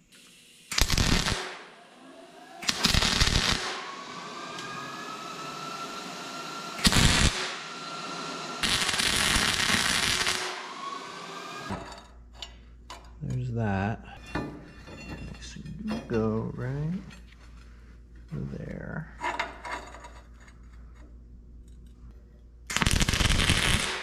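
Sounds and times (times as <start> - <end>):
welding arc crackling: 0.0 - 1.8, 2.6 - 4.1, 6.4 - 7.7, 8.6 - 10.8, 22.7 - 24.0.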